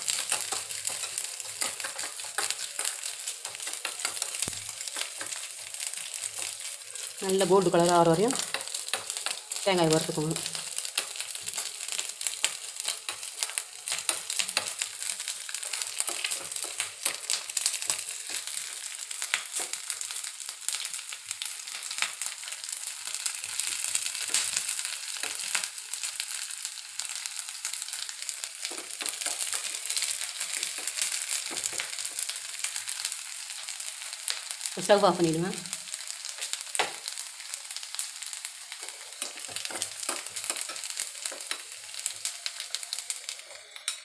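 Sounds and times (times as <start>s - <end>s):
metal spoon stirring in pan: 0.0s - 19.9s, 38.8s - 43.3s
coconut sizzling in hot oil: 0.0s - 44.0s.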